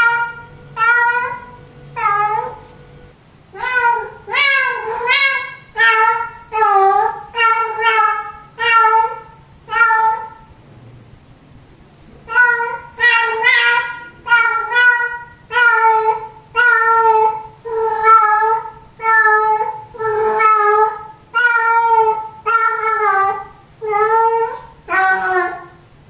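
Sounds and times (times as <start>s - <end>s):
cat meowing loudly: 3.6s - 9.1s.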